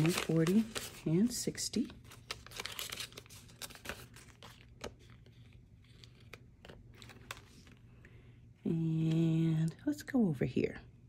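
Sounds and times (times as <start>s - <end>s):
paper banknotes rustling: 0.0s - 7.8s.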